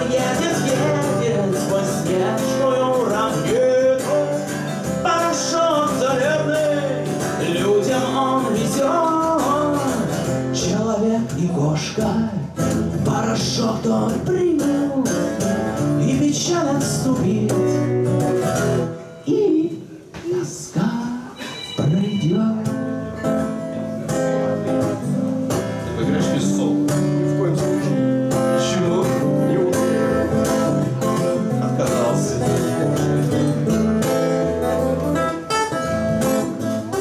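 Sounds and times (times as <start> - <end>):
lap slide guitar melody: 0.0 - 11.0, 22.5 - 37.0
acoustic guitar strumming chords: 0.0 - 37.0.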